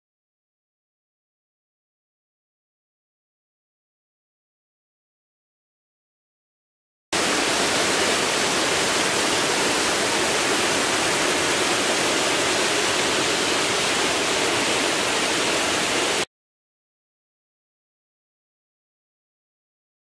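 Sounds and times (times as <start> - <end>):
stream rushing over rocks: 7.2 - 16.3.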